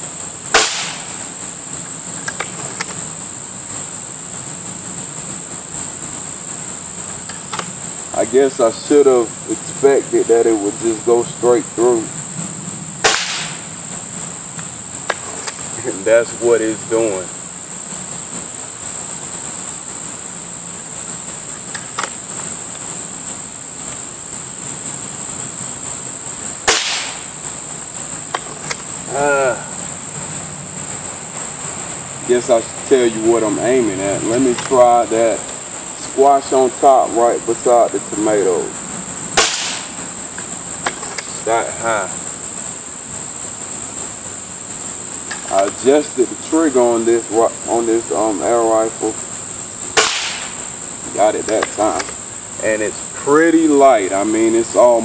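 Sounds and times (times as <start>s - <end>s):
high insect drone: 0.0s - 55.0s
air rifle shot: 0.5s - 1.2s, 13.0s - 13.7s, 26.6s - 27.3s, 39.4s - 40.0s, 50.0s - 50.6s.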